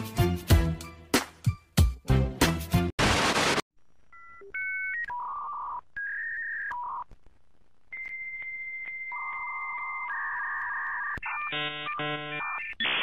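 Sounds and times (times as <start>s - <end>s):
static hiss: 3.0s - 3.6s
dial-up modem tones: 4.1s - 7.1s, 7.9s - 13.0s.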